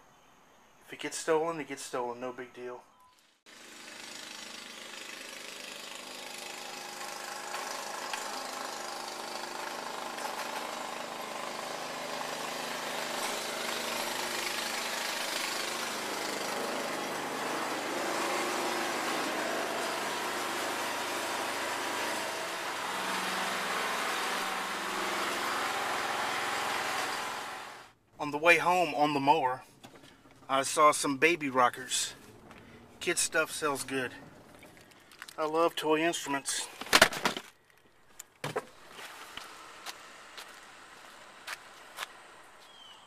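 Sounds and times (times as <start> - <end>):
lawn mower running: 3.5 - 28.0.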